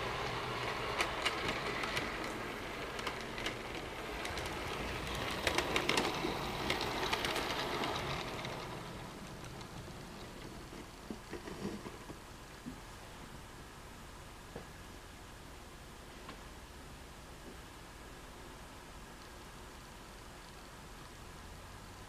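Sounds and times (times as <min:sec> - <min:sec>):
model train running on track: 0:00.0 - 0:12.2
wheels clicking on track: 0:00.0 - 0:12.2.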